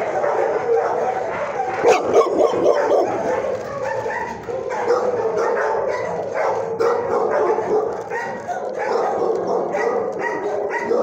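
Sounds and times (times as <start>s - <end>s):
dogs barking and whining: 0.0s - 11.0s.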